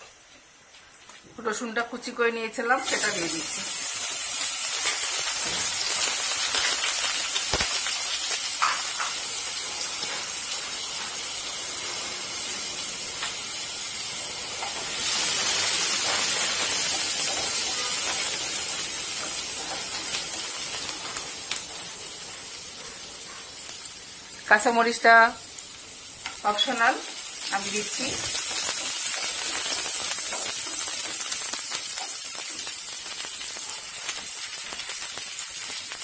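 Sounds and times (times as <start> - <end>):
garlic sizzling in hot oil: 1.0 - 36.0.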